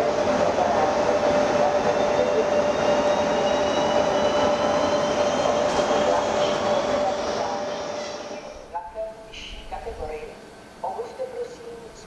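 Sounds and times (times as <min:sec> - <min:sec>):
electric train rolling: 0:00.0 - 0:09.0.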